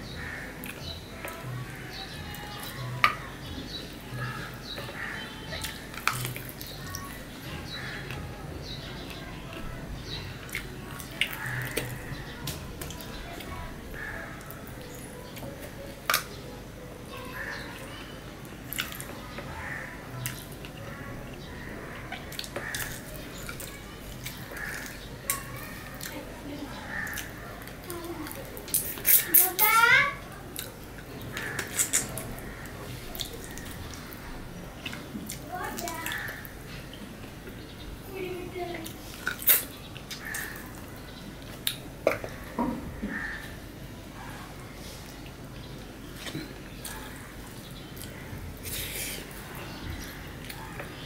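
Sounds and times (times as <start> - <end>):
person chewing food: 30.5 - 34.1
person chewing: 31.6 - 32.4, 38.8 - 40.7.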